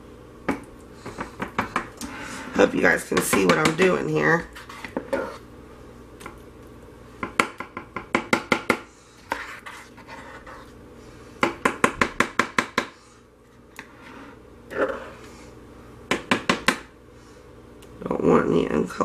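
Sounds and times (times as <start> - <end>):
spoon scraping soap: 4.4 - 5.5, 9.2 - 10.8, 13.8 - 15.3.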